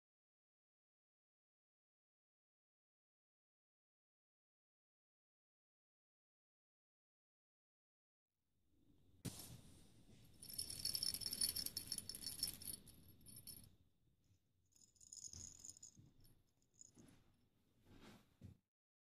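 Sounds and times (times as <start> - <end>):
bell in toy ball jingling: 10.4 - 13.7, 14.8 - 16.0.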